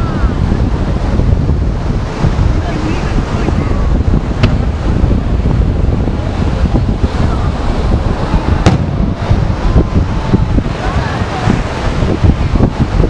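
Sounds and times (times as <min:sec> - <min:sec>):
wind buffeting microphone: 0:00.0 - 0:13.0
firework crack: 0:08.6 - 0:10.0.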